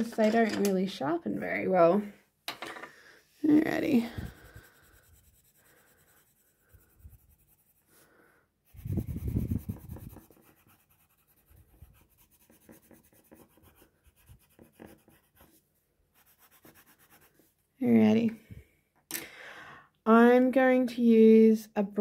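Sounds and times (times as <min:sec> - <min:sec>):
pencil scratching on paper: 0:03.6 - 0:17.6.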